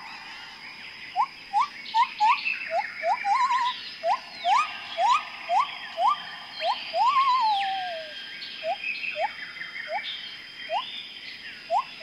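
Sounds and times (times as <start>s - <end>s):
high insect drone: 0.0s - 12.0s
short rising whistled calls: 1.2s - 9.3s, 10.7s - 10.9s
long wavering call: 3.3s - 8.2s.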